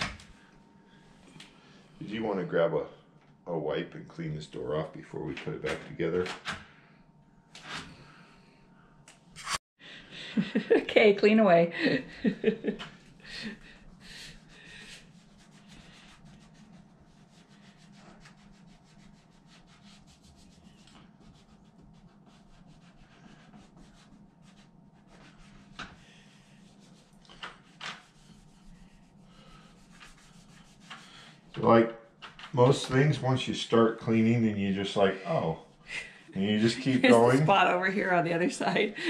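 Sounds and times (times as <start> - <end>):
wipe rubbing on painted door: 13.3 - 31.5.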